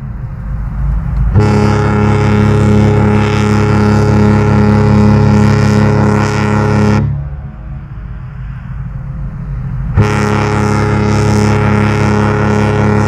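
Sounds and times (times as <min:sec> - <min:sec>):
low rumble: 0:00.0 - 0:13.0
ship horn deep blast: 0:01.2 - 0:08.5, 0:09.9 - 0:13.0.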